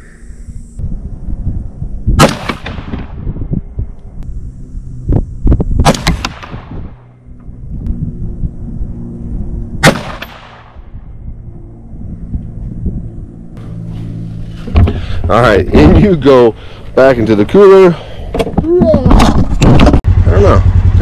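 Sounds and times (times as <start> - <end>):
rifle shots with echo: 2.2 - 3.2, 5.8 - 6.8, 9.8 - 10.8.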